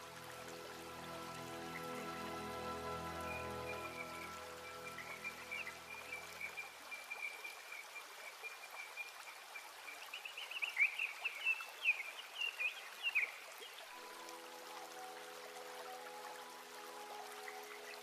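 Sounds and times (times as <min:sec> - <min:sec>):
background music: 0:00.0 - 0:06.6, 0:13.9 - 0:18.0
rushing water: 0:00.0 - 0:18.0.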